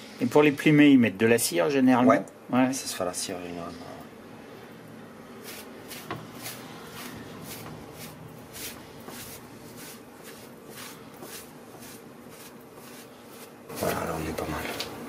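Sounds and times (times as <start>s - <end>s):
cloth rubbing on duck skin: 5.4s - 14.3s.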